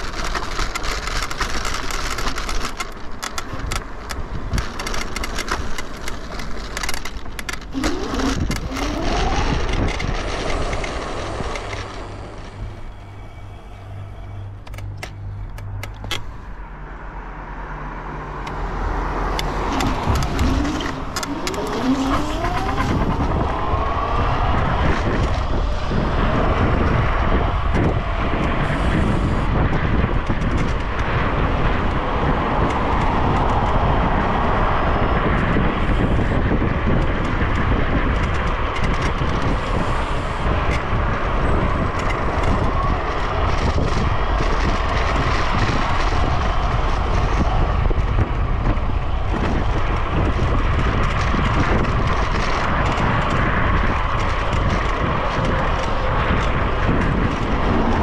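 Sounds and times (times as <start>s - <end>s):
wind and road noise: 0.0s - 58.0s
electric motor whine: 7.7s - 13.0s, 19.4s - 23.5s.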